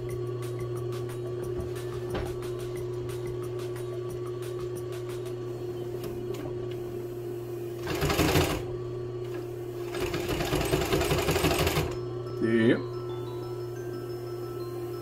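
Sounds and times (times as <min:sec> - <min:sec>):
steady hum: 0:00.0 - 0:15.0
sewing machine stitching leather: 0:07.8 - 0:08.7, 0:09.8 - 0:12.0.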